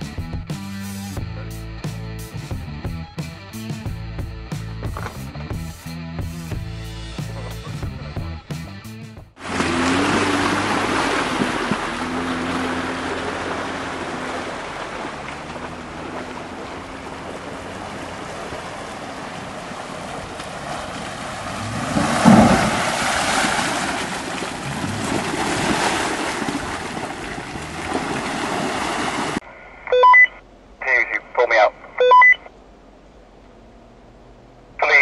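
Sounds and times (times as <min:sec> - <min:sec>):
car engine running: 0:09.4 - 0:28.7, 0:32.5 - 0:35.0
water splashing around tyres: 0:09.4 - 0:29.4.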